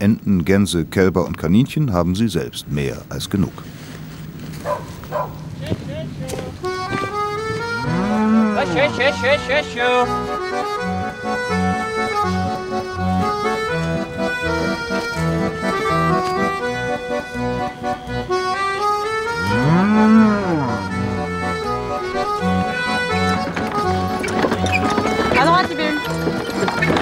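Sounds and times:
accordion music: 5.6 - 27.0
cow mooing: 7.6 - 10.3, 19.3 - 24.2
pulsing bass line: 19.2 - 27.0.

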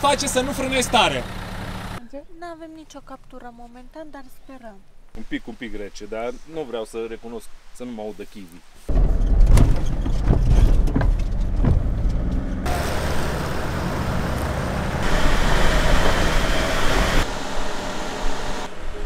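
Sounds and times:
engine and road noise inside vehicle: 0.0 - 2.0, 8.9 - 19.0
car driving past: 11.5 - 19.0.

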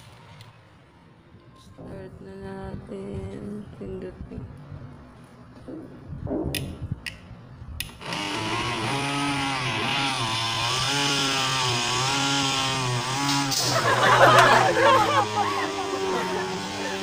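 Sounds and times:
small blender motor whirring: 8.0 - 17.0.

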